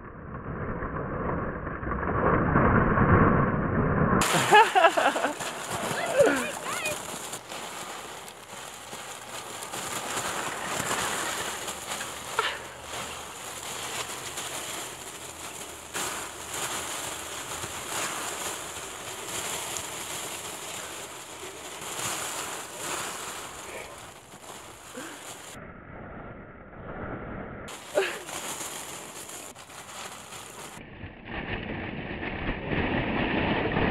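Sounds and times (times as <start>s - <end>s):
plastic balls rattling and rustling: 4.2s - 25.6s, 27.7s - 30.8s.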